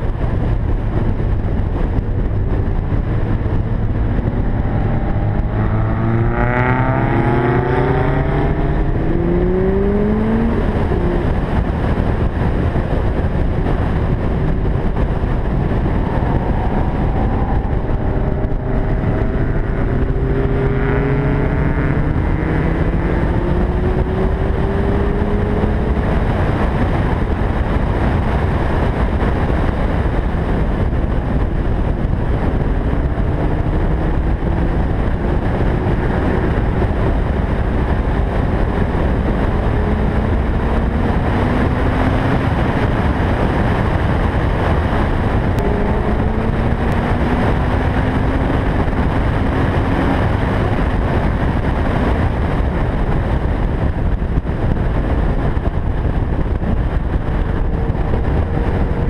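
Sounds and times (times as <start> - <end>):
car engine accelerating: 0.0 - 59.0
wind and road noise: 0.0 - 59.0.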